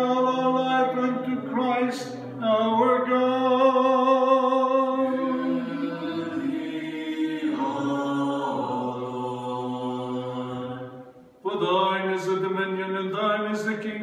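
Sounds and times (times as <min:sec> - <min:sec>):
voices chanting: 0:04.8 - 0:12.4.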